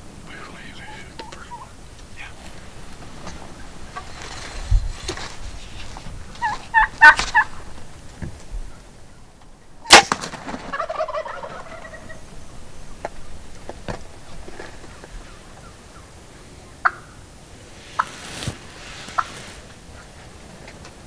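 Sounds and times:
turkey gobbling: 0.2s - 4.4s, 6.3s - 20.2s.

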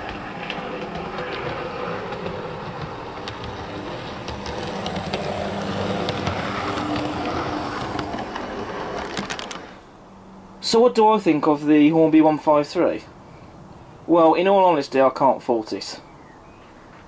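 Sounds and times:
model train running on track: 0.0s - 9.8s.

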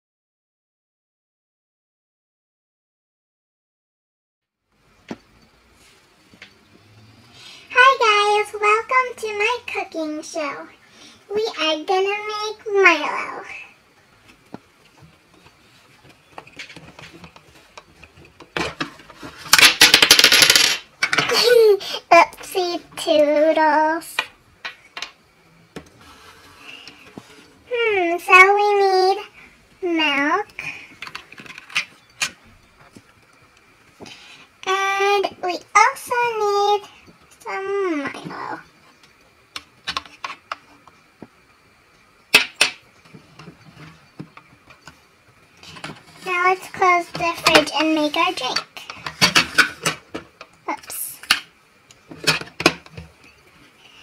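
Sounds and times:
plastic toys clicking and knocking: 16.0s - 21.6s, 24.1s - 25.2s, 31.0s - 33.4s, 39.1s - 40.7s, 42.3s - 42.8s, 47.0s - 50.6s, 51.2s - 53.2s.

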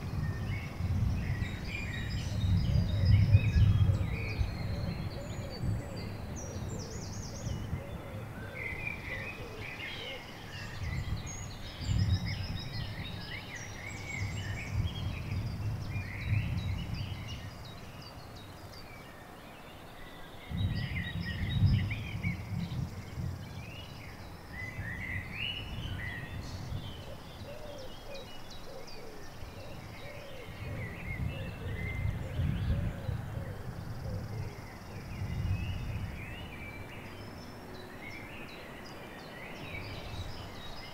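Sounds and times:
birds chirping and trilling: 0.0s - 40.9s.

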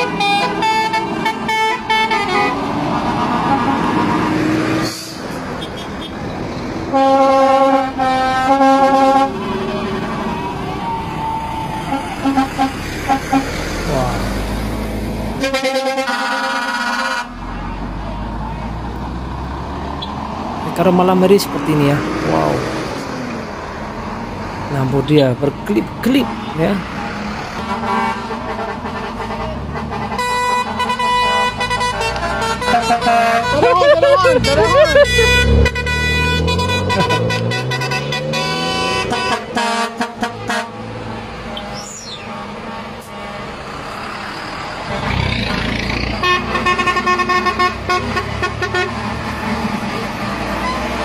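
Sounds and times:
truck horn: 0.0s - 10.5s, 11.7s - 14.2s, 15.4s - 17.9s, 27.6s - 51.0s
lorries driving past: 0.0s - 51.0s
short horn toots: 34.4s - 40.7s.

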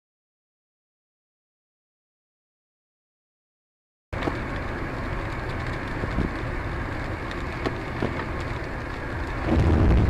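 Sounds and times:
road and engine rumble: 4.1s - 10.0s
rain on windscreen: 4.2s - 10.0s.

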